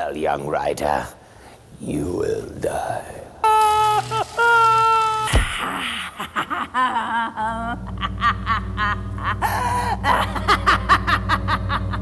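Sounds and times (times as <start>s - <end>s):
woman cackling: 3.5s - 12.0s
low steady drone: 7.3s - 12.0s.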